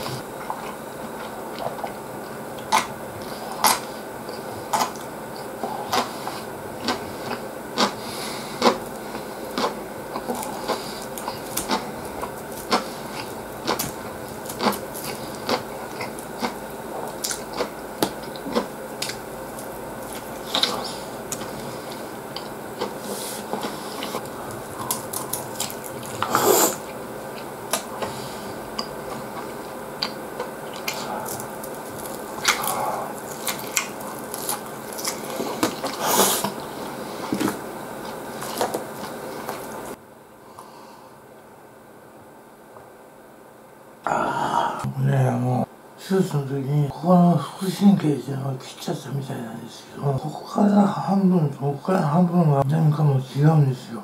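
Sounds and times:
man chewing and smacking: 0.0s - 40.0s.

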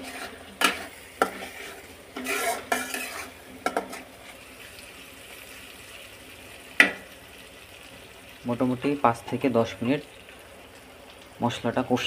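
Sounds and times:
spatula scraping metal pan: 0.0s - 4.4s
paste sizzling in oil: 0.0s - 12.0s.

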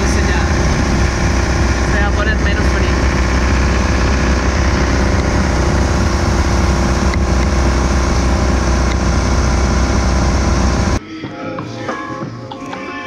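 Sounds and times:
vehicle engine and road noise: 0.0s - 11.0s.

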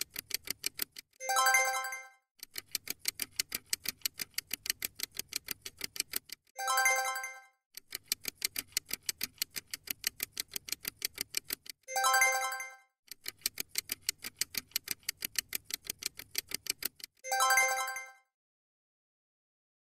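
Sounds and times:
rapid clock-like ticking: 0.0s - 18.1s
bright chime: 6.6s - 7.5s, 11.9s - 12.8s, 17.3s - 18.2s.

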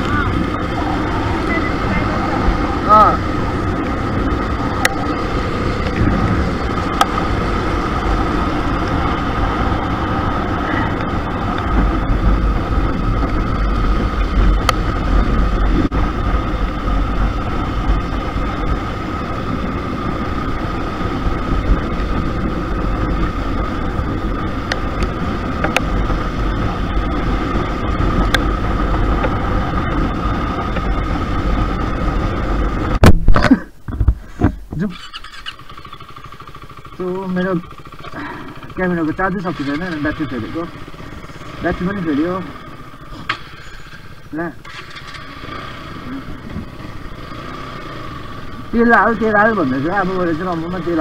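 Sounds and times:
steady high tone: 0.0s - 7.1s
wind buffeting microphone: 0.0s - 33.4s
motorcycle engine running: 0.0s - 51.0s.

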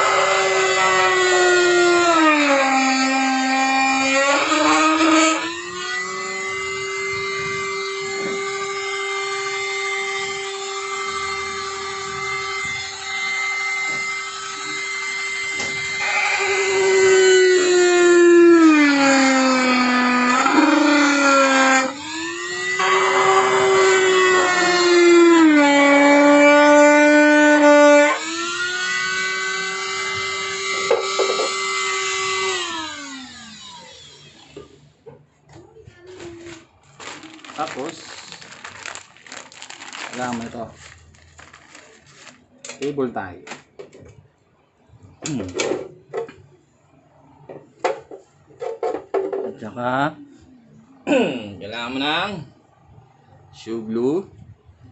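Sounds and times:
rotary tool grinding plastic: 0.0s - 34.7s, 36.4s - 42.5s
rotary tool motor whine: 0.0s - 35.0s.

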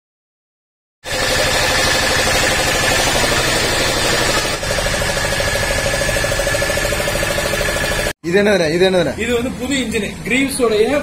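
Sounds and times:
engine running with fast pulse: 1.1s - 8.2s.

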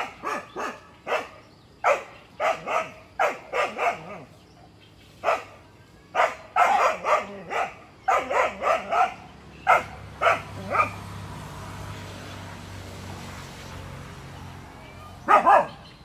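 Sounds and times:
dog barking: 0.0s - 4.4s, 5.2s - 11.0s, 15.2s - 16.0s.

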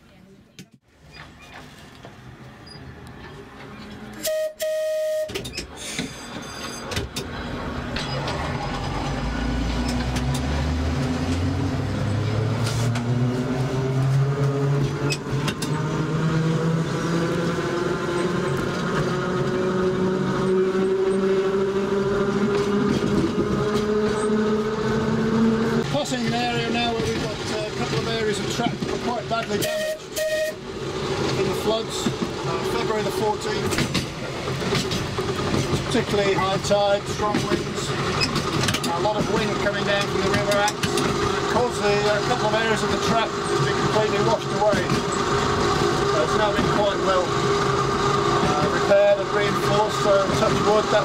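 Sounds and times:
tram motors whining: 1.0s - 51.0s
loud steady tone: 4.2s - 5.4s, 29.6s - 30.7s
wheels running on rails: 5.4s - 51.0s.

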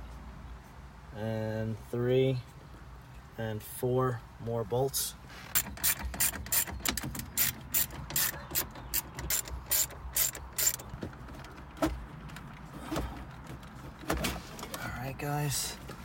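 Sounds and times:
hand ratchet clicking: 5.5s - 10.9s.

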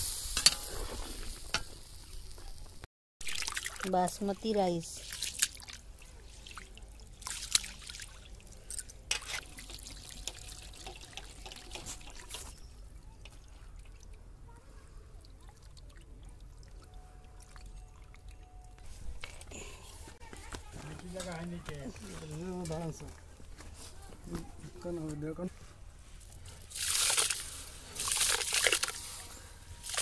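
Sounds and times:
water trickling onto ground: 1.2s - 4.3s, 5.0s - 14.2s, 15.2s - 19.4s, 26.2s - 29.2s
rice splashed by hand in basin: 3.3s - 3.8s, 26.7s - 29.1s.

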